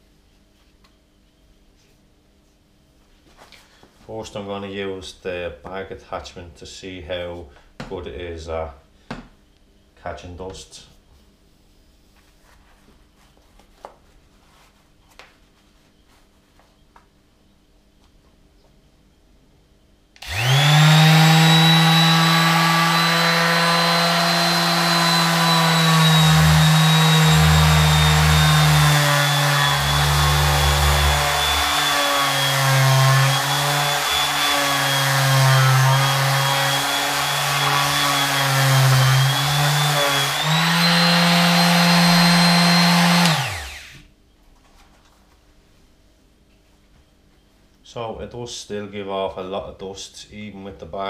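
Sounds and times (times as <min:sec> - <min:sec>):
electric sander whining: 0:20.2 - 0:44.0.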